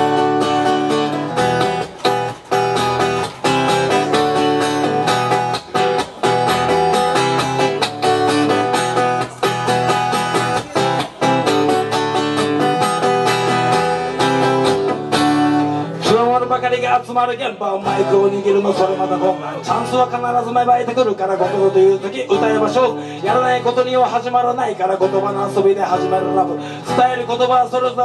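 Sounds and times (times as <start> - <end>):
acoustic guitar strumming: 0.0 - 28.0
man's voice: 9.1 - 11.9, 16.0 - 28.0.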